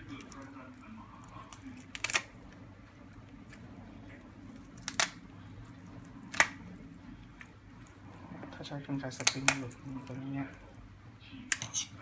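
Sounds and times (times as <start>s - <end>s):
shears snapping through bone: 1.5s - 2.3s, 4.8s - 5.2s, 6.3s - 6.6s, 9.1s - 10.2s, 11.5s - 11.9s.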